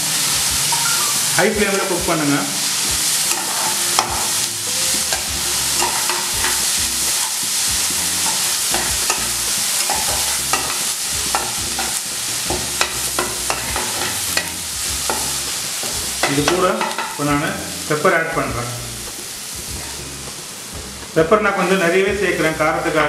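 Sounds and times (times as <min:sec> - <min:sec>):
onions sizzling in fat: 0:00.0 - 0:23.0
spatula scraping and tapping pan: 0:03.2 - 0:17.3.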